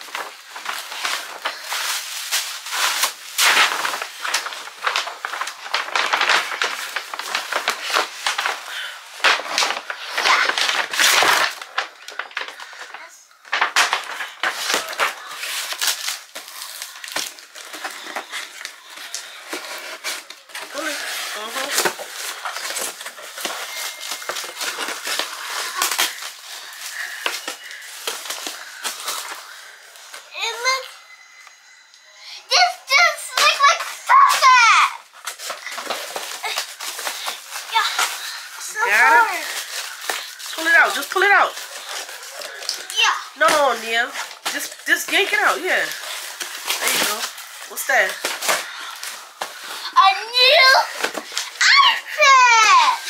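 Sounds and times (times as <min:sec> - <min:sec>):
gift wrap crinkling and rustling: 0:00.0 - 0:53.0.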